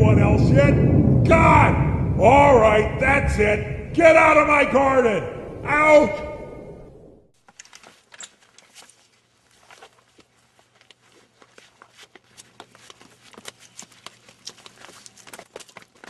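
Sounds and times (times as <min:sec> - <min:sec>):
light footsteps on grass: 0:07.8 - 0:16.0.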